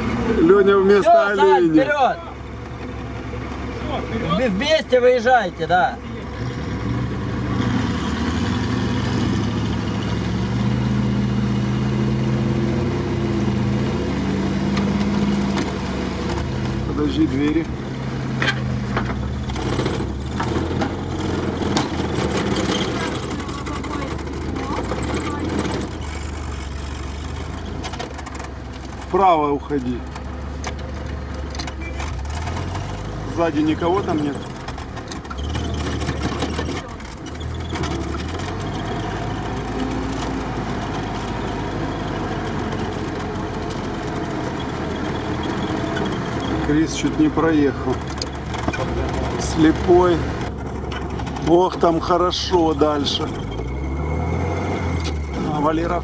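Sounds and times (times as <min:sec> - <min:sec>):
light clattering of vehicle interior: 0:18.4 - 0:26.6, 0:45.7 - 0:53.6
short knocks and rattles: 0:18.4 - 0:29.2, 0:30.0 - 0:40.4
engine idling inside cab: 0:21.6 - 0:32.0.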